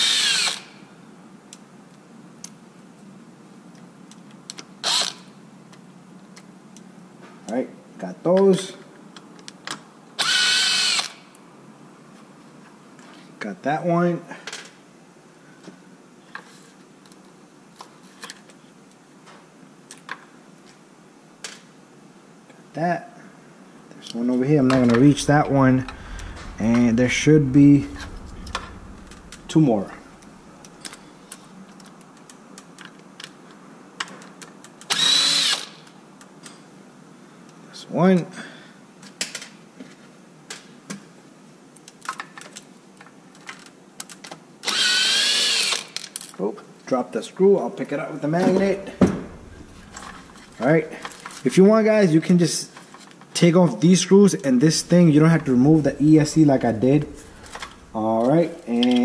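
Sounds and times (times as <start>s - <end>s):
cordless screwdriver whirring: 0.0s - 0.7s, 4.8s - 5.2s, 10.2s - 11.2s, 34.9s - 35.7s, 44.7s - 45.9s.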